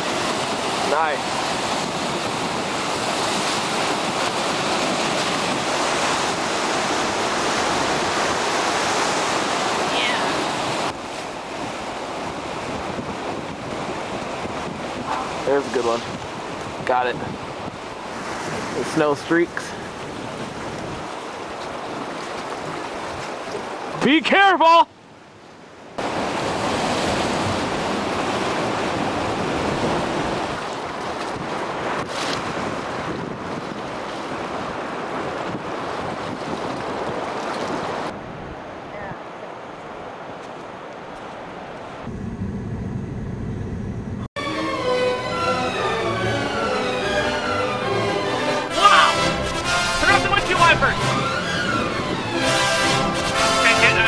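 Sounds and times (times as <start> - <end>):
wind buffeting microphone: 0.0 - 24.0, 25.2 - 44.3, 49.3 - 53.6
surf breaking over rocks: 0.0 - 24.8, 26.0 - 38.2, 48.6 - 51.1, 52.4 - 54.0
wind rushing: 41.6 - 44.3, 48.1 - 54.0.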